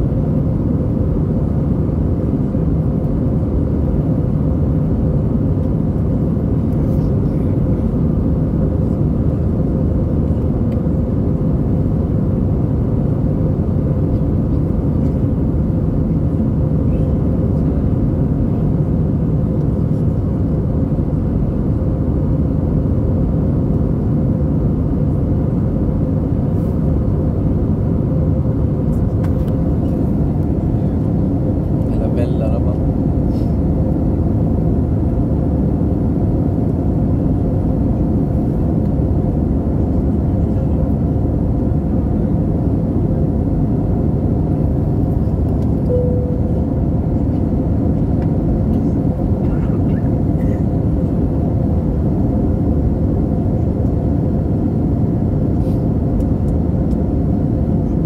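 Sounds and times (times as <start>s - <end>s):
airplane cabin engine roar: 0.0s - 58.0s
faint steady hum: 27.3s - 55.4s.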